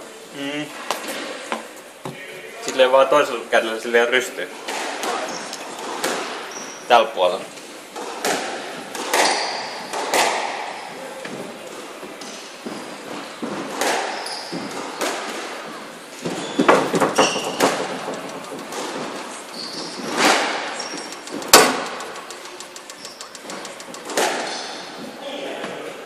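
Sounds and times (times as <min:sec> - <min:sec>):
squash ball hitting rackets and walls: 0:04.6 - 0:06.8, 0:07.9 - 0:25.8
shoes squeaking on floor: 0:05.1 - 0:07.0, 0:09.2 - 0:10.0, 0:12.1 - 0:15.1, 0:16.1 - 0:25.2.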